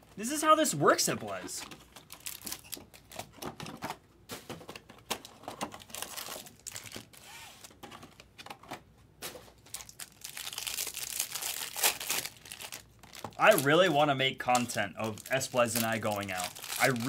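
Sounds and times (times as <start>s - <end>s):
foil packs crinkling: 1.6s - 3.8s, 5.2s - 8.3s, 9.5s - 17.0s.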